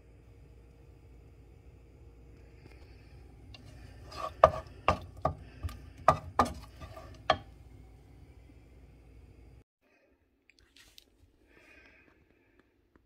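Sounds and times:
wooden utensil knocking on frying pan: 4.2s - 7.5s.

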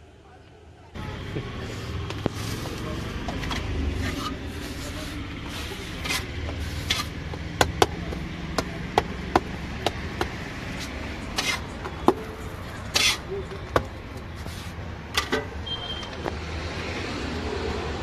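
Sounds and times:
metal spatula scraping griddle: 3.6s - 7.2s, 10.7s - 13.3s.

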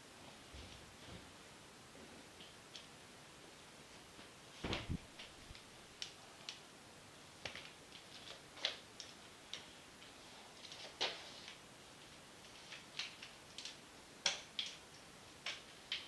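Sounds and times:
heavier thump: 4.6s - 5.3s.

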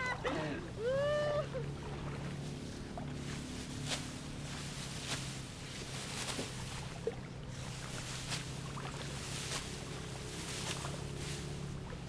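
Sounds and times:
low engine hum: 0.0s - 12.0s
soft swish: 2.4s - 11.8s.

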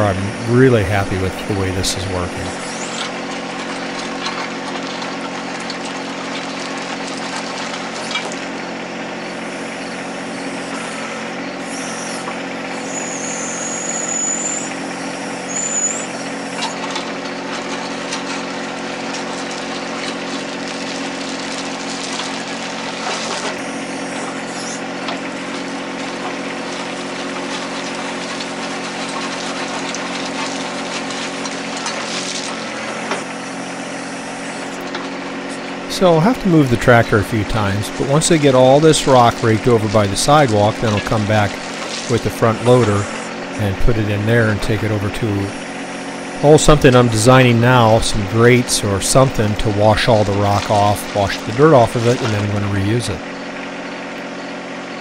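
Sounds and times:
diesel tractor engine running: 0.0s - 55.0s
high squeaks: 11.7s - 17.0s
bucket dragging through rock: 16.7s - 33.3s, 34.7s - 45.8s, 46.4s - 53.2s.

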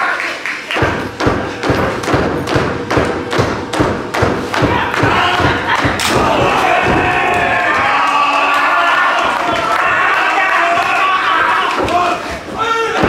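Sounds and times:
heavy thumps: 0.8s - 8.0s, 10.7s - 13.0s.

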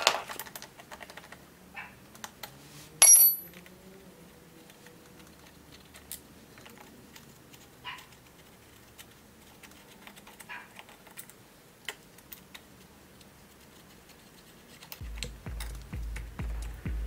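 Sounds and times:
hand tools clicking and scraping: 2.1s - 3.7s
low regular thumping: 15.0s - 17.0s.

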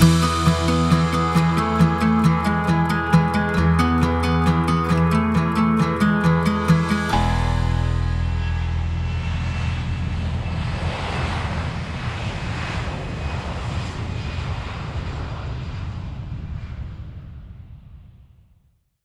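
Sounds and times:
aircraft flying past: 6.5s - 18.1s.

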